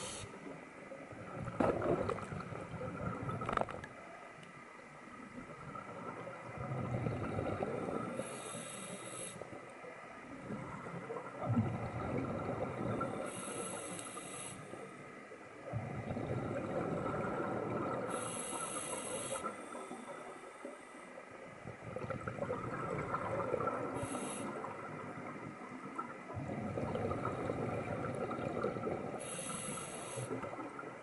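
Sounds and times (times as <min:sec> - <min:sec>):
regulator hiss: 0:00.0 - 0:00.6, 0:08.2 - 0:09.5, 0:13.3 - 0:14.9, 0:18.1 - 0:19.8, 0:24.0 - 0:24.6, 0:29.2 - 0:30.4
exhaled bubbles underwater: 0:01.0 - 0:03.9, 0:05.2 - 0:08.3, 0:10.2 - 0:13.8, 0:15.6 - 0:31.0.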